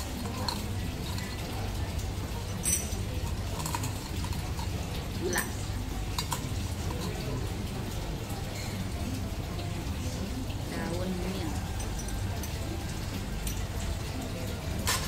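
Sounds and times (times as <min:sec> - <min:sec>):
teaspoon clinking against glass cup: 0:00.0 - 0:01.7, 0:02.5 - 0:07.5.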